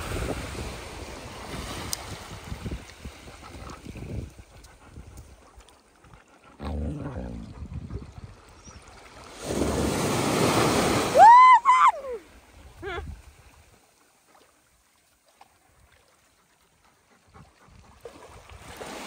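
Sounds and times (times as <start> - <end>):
small waves breaking on sand: 0.0 - 4.0, 9.1 - 16.1, 18.1 - 19.0
loud high cry: 11.1 - 12.2.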